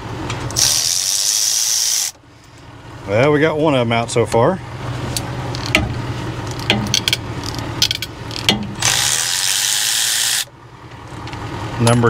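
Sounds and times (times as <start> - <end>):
cordless ratchet running: 0.6 - 2.2, 6.6 - 10.5.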